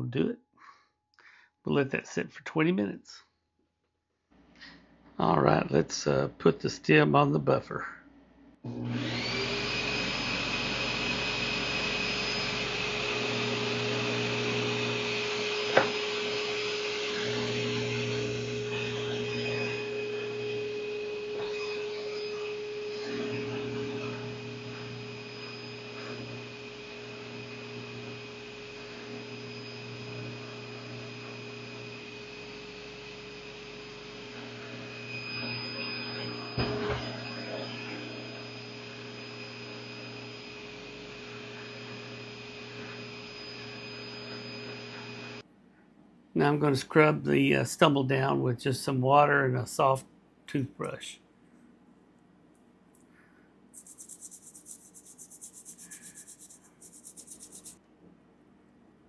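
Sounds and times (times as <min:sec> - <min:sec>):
buffer motor whine: 0:08.6 - 0:45.4.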